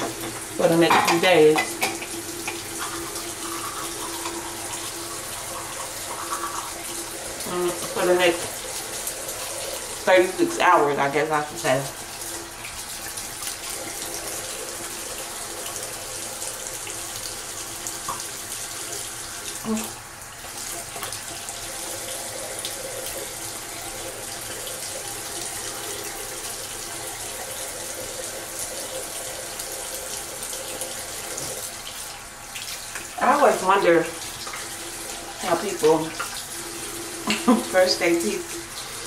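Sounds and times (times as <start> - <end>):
tap running into sink: 0.0 - 9.9, 16.6 - 21.6, 30.1 - 32.0.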